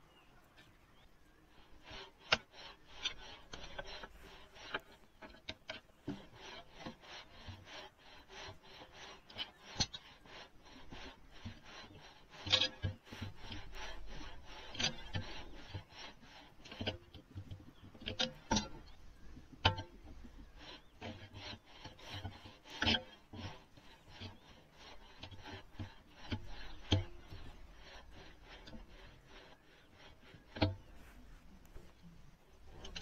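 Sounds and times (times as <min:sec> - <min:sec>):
hand tool scraping: 0:01.5 - 0:33.0.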